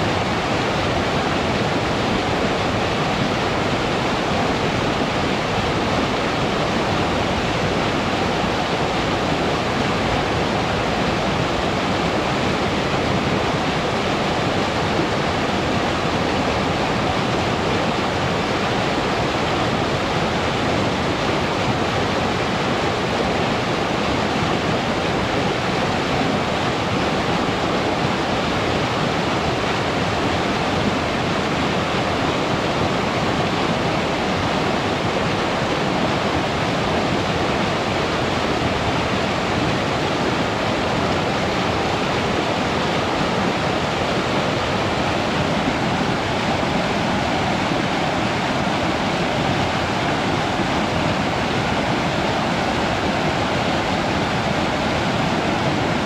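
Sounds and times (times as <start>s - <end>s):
river water rushing: 0.0s - 56.0s.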